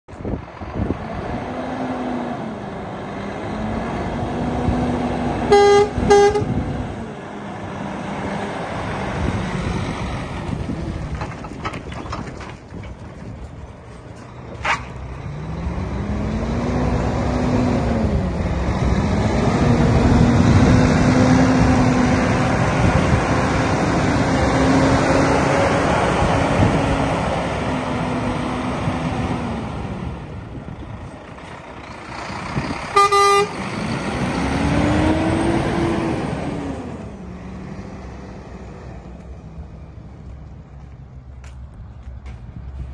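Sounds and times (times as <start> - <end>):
diesel truck engine driving slowly: 0.1 - 42.9
truck horn toots: 5.4 - 6.7, 32.9 - 33.6.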